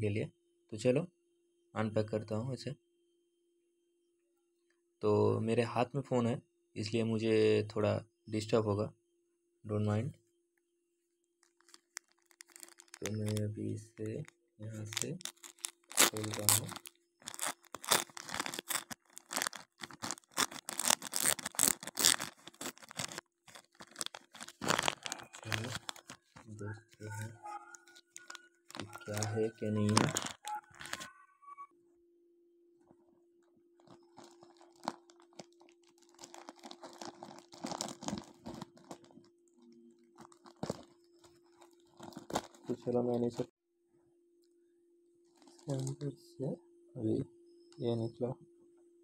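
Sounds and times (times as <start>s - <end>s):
plastic bag tearing and crinkling: 11.4s - 13.4s, 14.8s - 26.5s, 27.1s - 31.1s, 33.8s - 39.3s, 40.1s - 43.4s.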